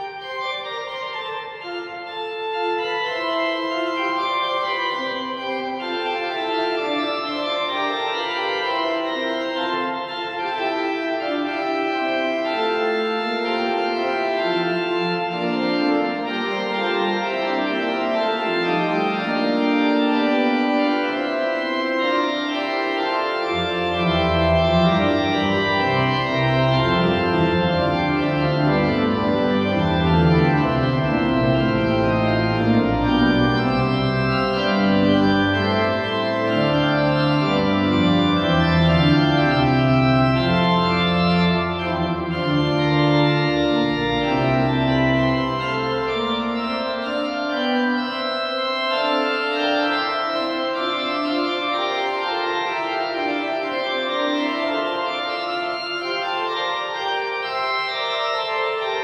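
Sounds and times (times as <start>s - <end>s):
pipe organ baroque piece: 0.0s - 59.0s
low organ bass line: 23.8s - 47.6s.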